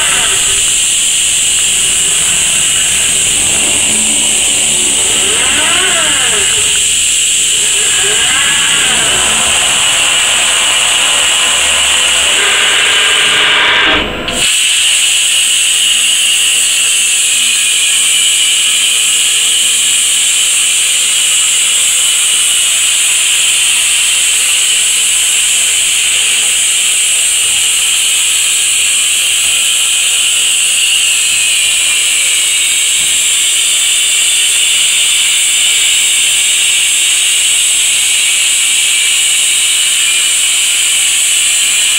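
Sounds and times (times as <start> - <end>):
motor whine: 0.0 - 41.9
plasma torch cutting hiss: 0.0 - 41.9.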